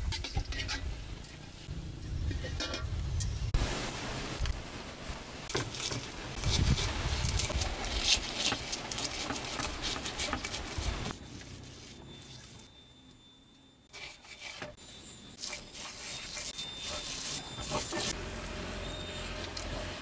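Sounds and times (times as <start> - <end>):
pestle grinding in stone mortar: 5.5 - 11.1.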